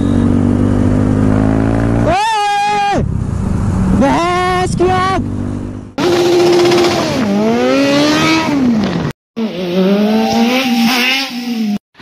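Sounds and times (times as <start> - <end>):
motorcycle engine revving: 0.0 - 2.1, 5.2 - 11.8.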